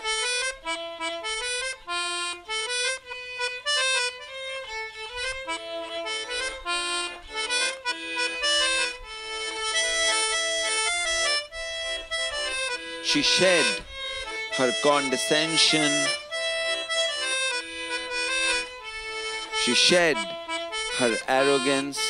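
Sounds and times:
background music melody: 0.0 - 22.0.

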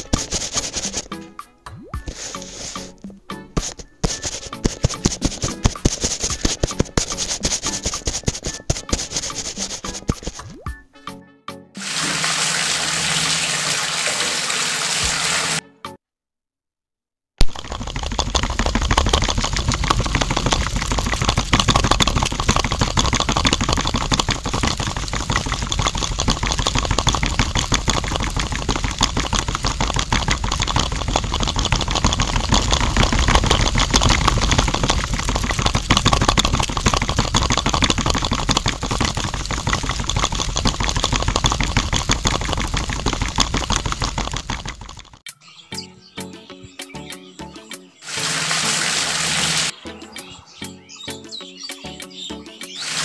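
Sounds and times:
small electric motor buzzing: 52.8 - 53.0.

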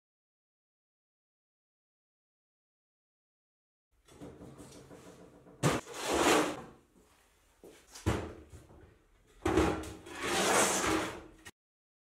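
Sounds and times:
metal scraping slide: 5.8 - 6.6, 10.0 - 11.4.

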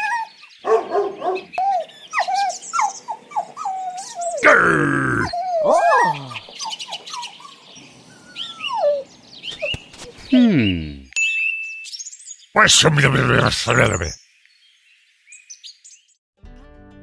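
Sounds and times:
cartoon dog yapping: 3.8 - 6.4.

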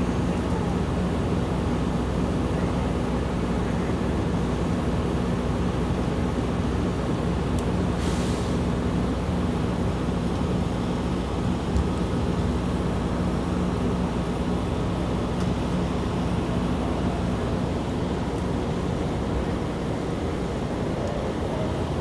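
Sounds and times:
pump engine drone: 0.0 - 22.0
short hiss: 8.0 - 8.6.

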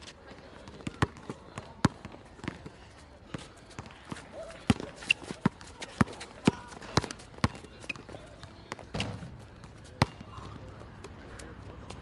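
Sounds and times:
basketball bouncing on court: 0.7 - 2.6, 3.8 - 10.6.

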